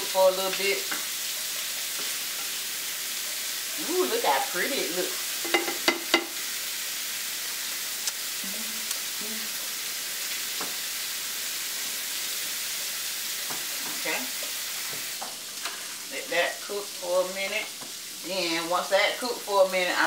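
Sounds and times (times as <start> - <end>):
sausage and peppers sizzling: 0.0 - 20.0.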